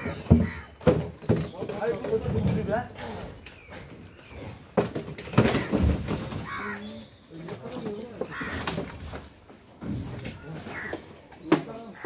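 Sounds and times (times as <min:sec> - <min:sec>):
crow cawing: 0:00.0 - 0:00.7, 0:06.4 - 0:06.9, 0:08.3 - 0:08.9, 0:10.7 - 0:11.0.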